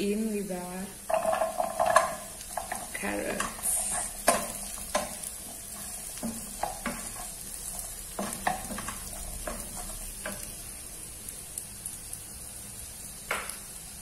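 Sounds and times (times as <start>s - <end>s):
faint oil sizzle: 0.0s - 14.0s
spatula scraping and tapping pan: 1.0s - 10.8s.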